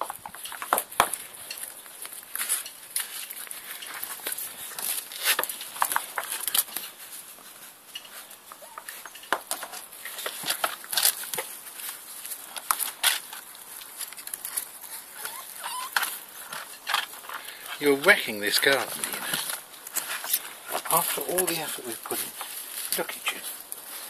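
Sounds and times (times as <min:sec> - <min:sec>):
rustling of grass and leaves: 0:00.0 - 0:24.0
puppies yipping: 0:08.2 - 0:09.4, 0:14.4 - 0:17.0.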